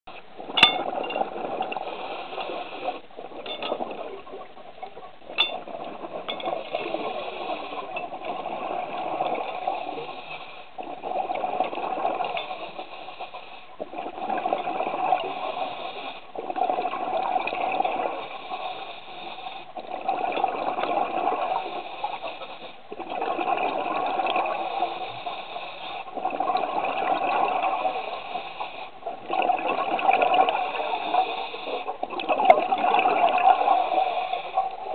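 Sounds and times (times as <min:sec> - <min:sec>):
exhaled bubbles rushing: 0:00.3 - 0:10.2, 0:10.8 - 0:12.9, 0:13.8 - 0:18.8, 0:19.7 - 0:25.1, 0:26.1 - 0:28.2, 0:28.9 - 0:34.9.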